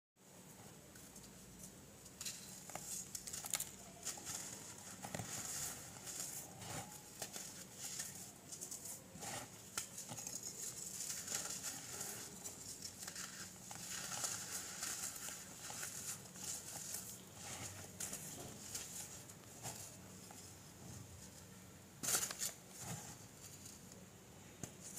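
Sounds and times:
fragments pattering into powder: 2.2 - 20.0
baking soda crunching: 2.3 - 20.1.

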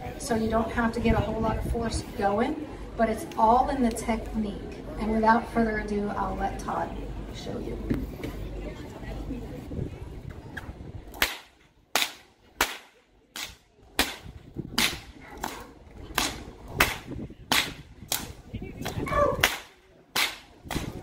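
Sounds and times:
whip cracking: 11.1 - 21.0.

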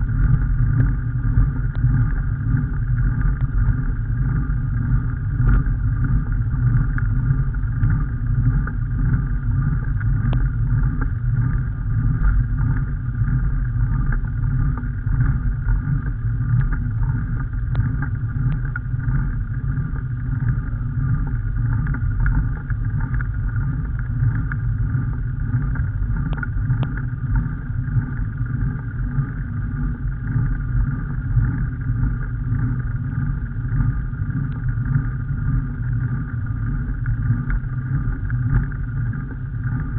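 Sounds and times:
faint ticks: 1.6 - 2.2, 9.8 - 12.8, 14.1 - 24.7, 25.6 - 28.4, 35.8 - 39.9.

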